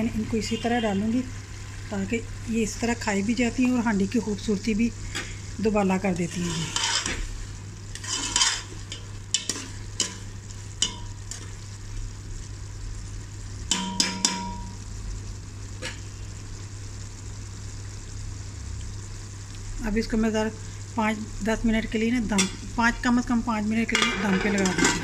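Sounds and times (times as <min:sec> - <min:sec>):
metal ladle stirring in pot: 0:06.3 - 0:11.6, 0:23.9 - 0:25.0.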